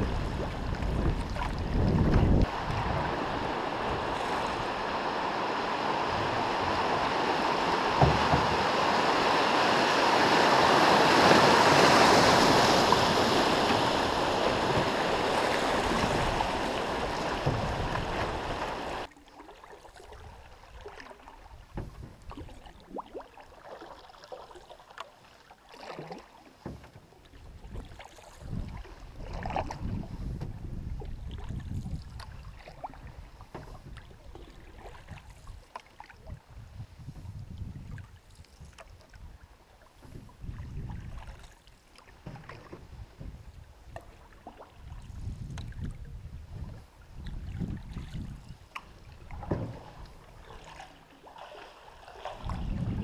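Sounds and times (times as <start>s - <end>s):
paddle splashes and knocks: 0.0s - 53.0s
river water rushing: 2.3s - 19.1s.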